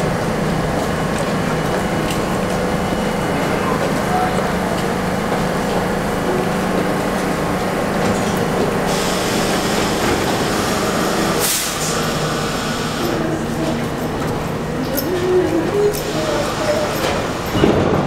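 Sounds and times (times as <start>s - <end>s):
subway train hum: 0.0s - 18.0s
train doors closing: 0.0s - 18.0s
brake air hiss: 8.9s - 13.3s.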